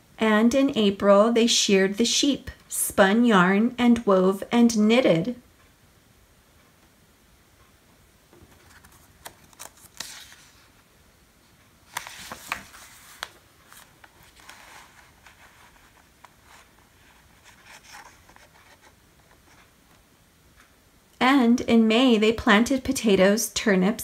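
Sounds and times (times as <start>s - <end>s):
book pages turning: 8.4s - 10.8s, 11.9s - 19.7s.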